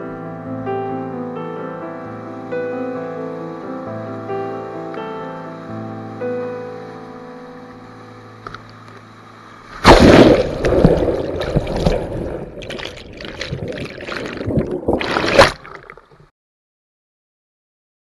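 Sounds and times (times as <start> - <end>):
faint music: 0.2 - 9.8
underwater churning whitewater: 8.4 - 16.3.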